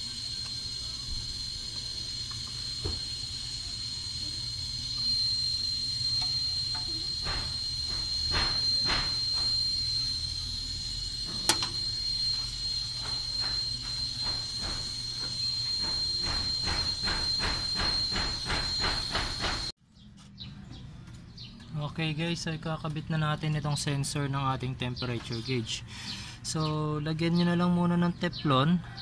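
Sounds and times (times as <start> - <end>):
high-pitched insect trill: 0.0 - 19.7.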